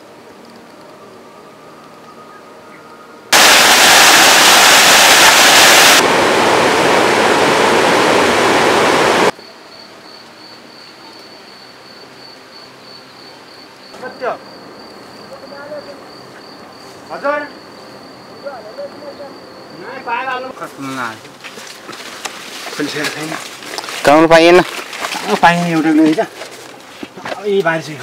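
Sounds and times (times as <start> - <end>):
loud even rushing noise: 3.3 - 9.3
high insect trill: 9.3 - 28.0.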